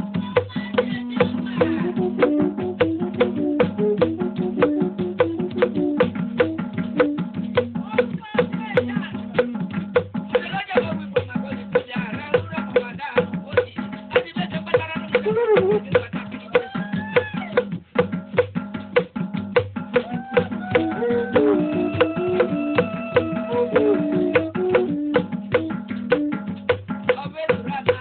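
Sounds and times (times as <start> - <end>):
drums: 0.0 - 28.0
wood block strikes: 19.8 - 28.0.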